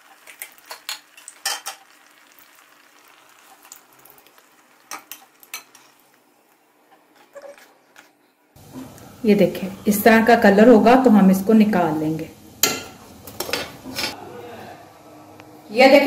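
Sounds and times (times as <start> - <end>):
hot oil sizzling: 0.0 - 6.6, 8.6 - 14.2
metal utensils clinking on pan: 0.3 - 2.0, 4.9 - 5.9, 12.6 - 14.2.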